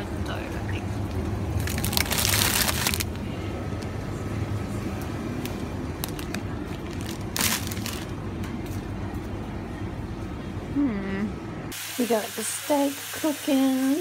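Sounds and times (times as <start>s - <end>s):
low hum of chiller cases: 0.0s - 11.7s
plastic packaging crinkling: 1.6s - 3.1s, 6.0s - 8.1s.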